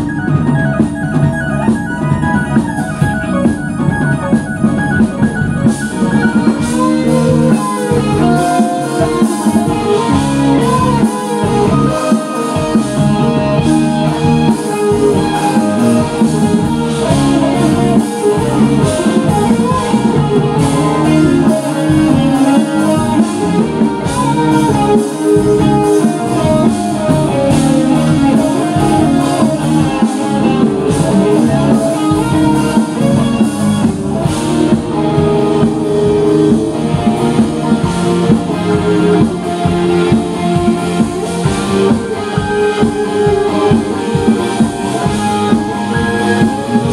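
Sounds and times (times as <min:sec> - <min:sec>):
drums: 0:00.0 - 0:46.9
electric guitars: 0:00.0 - 0:46.9
keyboard: 0:00.0 - 0:46.9.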